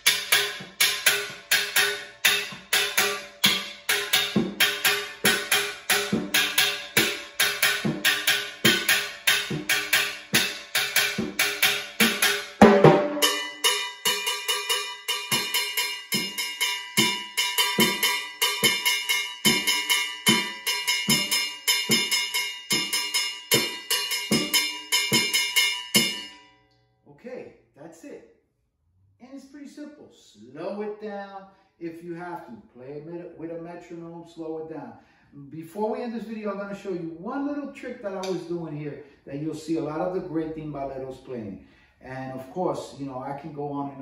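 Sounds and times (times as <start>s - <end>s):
cowbell pattern: 0.0s - 26.6s.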